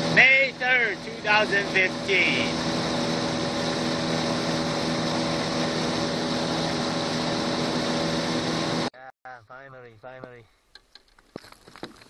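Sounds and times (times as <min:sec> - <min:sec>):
boat motor running: 0:00.0 - 0:08.9.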